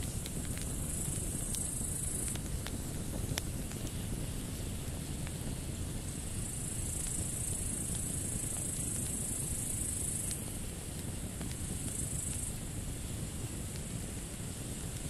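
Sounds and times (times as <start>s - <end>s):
grasshoppers buzzing: 0.0s - 2.6s
campfire crackling: 0.0s - 15.0s.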